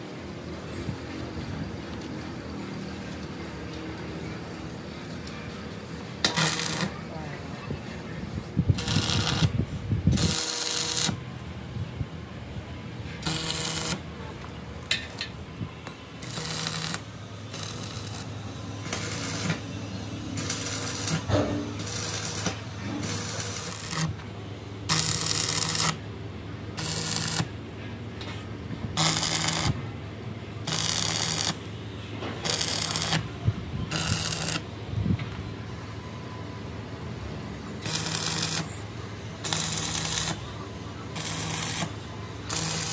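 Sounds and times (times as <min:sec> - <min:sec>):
crackling welding arc: 0:06.2 - 0:07.1, 0:08.8 - 0:11.2, 0:13.2 - 0:14.1, 0:14.8 - 0:24.2, 0:24.8 - 0:26.0, 0:26.8 - 0:27.6, 0:28.9 - 0:29.8, 0:30.6 - 0:31.7, 0:32.4 - 0:34.7, 0:37.8 - 0:40.5, 0:41.1 - 0:42.9.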